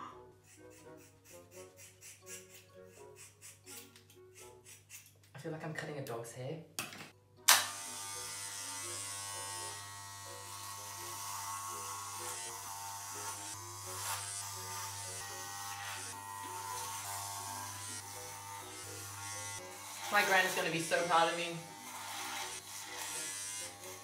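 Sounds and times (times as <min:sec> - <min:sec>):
hair clippers switch click: 0:07.5 - 0:07.9
hair clippers buzzing: 0:07.5 - 0:24.0.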